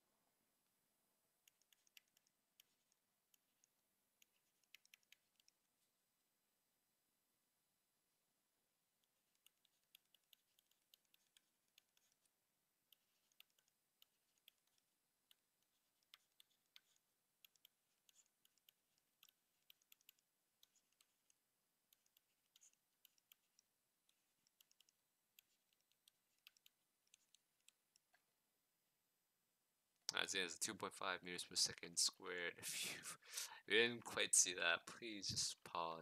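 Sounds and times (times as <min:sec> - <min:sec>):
stylus tapping on tablet screen: 0:01.5 - 0:05.7, 0:09.0 - 0:28.2.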